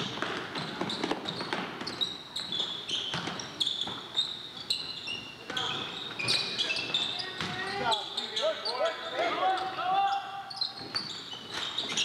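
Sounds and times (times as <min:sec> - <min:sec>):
basketball bouncing on gym floor: 0:00.0 - 0:04.1
sneakers squeaking on court: 0:00.0 - 0:09.7, 0:10.4 - 0:12.0.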